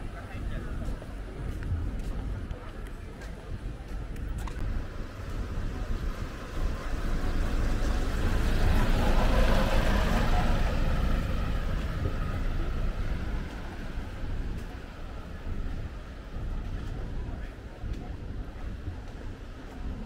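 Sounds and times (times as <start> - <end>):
vehicle passing with rumble: 4.6 - 15.4.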